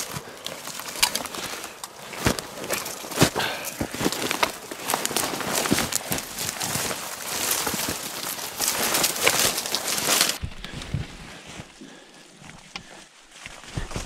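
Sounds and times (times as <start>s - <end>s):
dry brush rustling and crackling: 0.0s - 14.0s.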